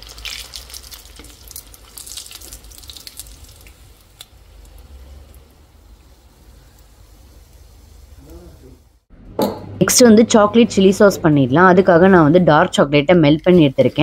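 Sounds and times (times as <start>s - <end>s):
food deep-frying in hot oil: 0.0s - 9.1s.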